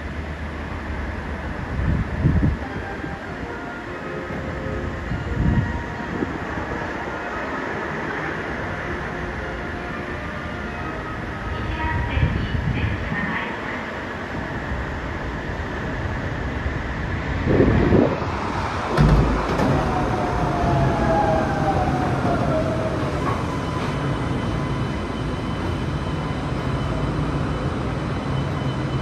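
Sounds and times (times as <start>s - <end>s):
train whine falling in pitch: 18.9s - 29.0s.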